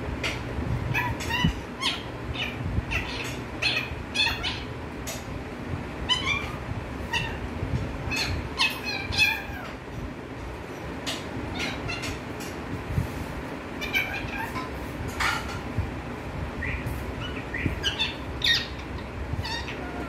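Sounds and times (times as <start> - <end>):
parakeet chattering: 0.2 - 5.2, 6.0 - 7.4, 8.0 - 9.8, 11.1 - 12.6, 13.8 - 15.5, 16.6 - 20.0.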